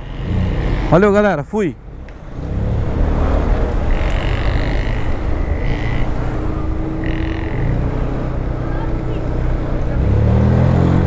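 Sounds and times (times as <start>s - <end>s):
road and wind noise: 0.0s - 11.0s
scooter engine running: 0.0s - 11.0s.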